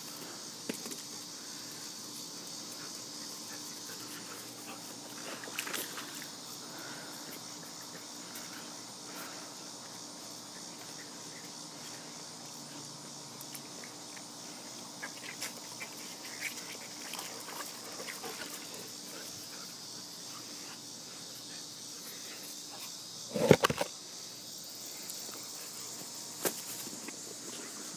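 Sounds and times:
insect chorus: 0.0s - 27.9s.

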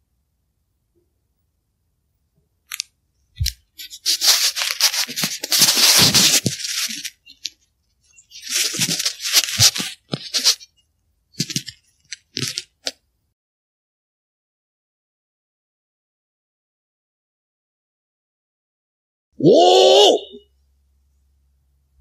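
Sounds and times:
dense crunching and rustling: 3.9s - 7.2s, 8.3s - 10.6s.

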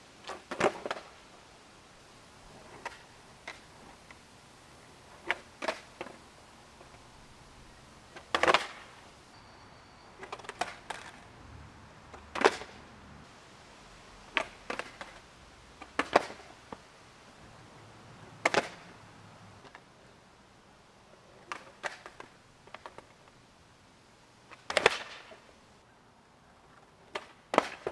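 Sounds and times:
skateboard clacking on asphalt: 0.2s - 1.2s, 2.6s - 4.2s, 5.1s - 7.1s, 8.1s - 9.0s, 10.2s - 11.3s, 12.1s - 12.9s, 14.2s - 16.9s, 18.2s - 19.0s, 21.1s - 23.4s, 24.5s - 25.5s, 26.7s - 27.9s.

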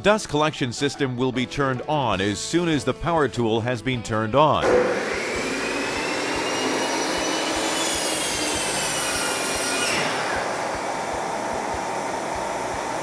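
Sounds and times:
miter saw motor whining: 4.6s - 13.0s
shop vacuum rushing: 4.6s - 13.0s.

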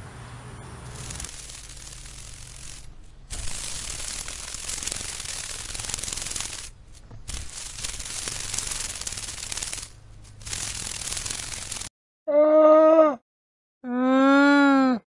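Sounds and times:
dragonfly wings whirring: 0.8s - 11.9s.

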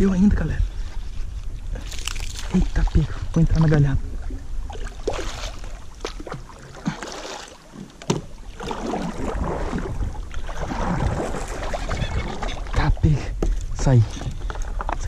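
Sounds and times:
paddle splashing in water: 4.2s - 12.9s.

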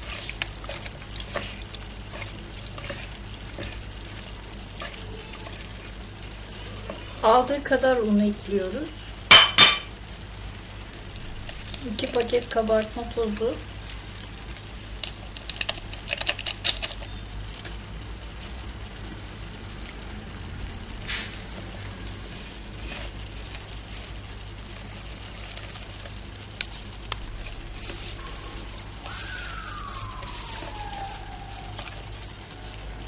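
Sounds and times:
hands kneading dough in a bowl: 0.0s - 7.6s, 20.7s - 33.0s
siren-like tone sliding down: 28.1s - 33.0s.

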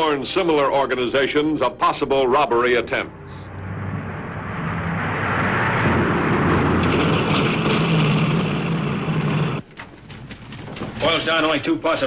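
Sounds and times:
car engine and road noise: 2.2s - 11.0s.

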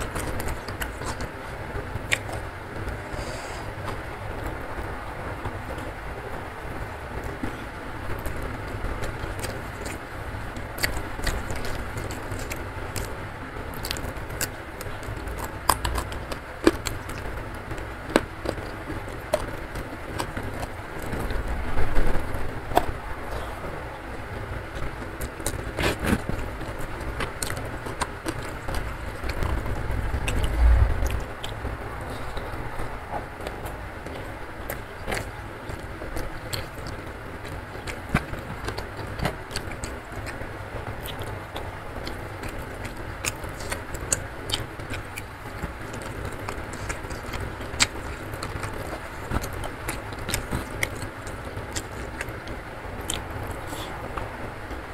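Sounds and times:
chewing: 0.0s - 4.9s, 7.2s - 54.8s
eating by hand: 0.0s - 54.9s
low rumble: 29.0s - 33.4s.

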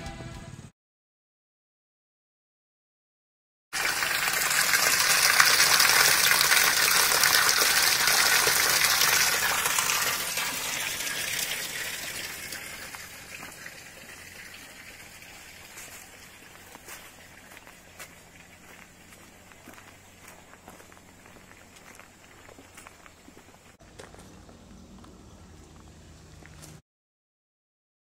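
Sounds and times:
spring water splashing in channel: 3.8s - 22.9s.

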